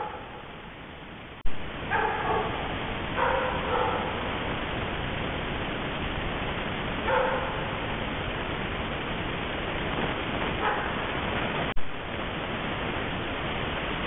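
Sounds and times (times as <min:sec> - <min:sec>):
animal barking: 0:00.0 - 0:00.5, 0:01.9 - 0:04.3, 0:07.0 - 0:07.8, 0:10.6 - 0:11.2
microphone hiss: 0:00.0 - 0:14.0.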